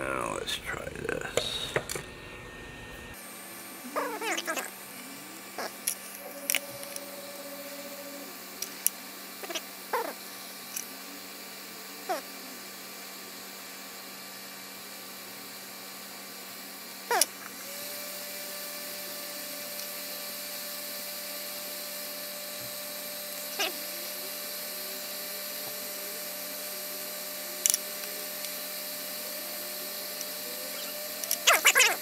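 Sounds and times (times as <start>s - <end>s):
faint steady whine: 0.0s - 3.2s, 3.8s - 12.6s.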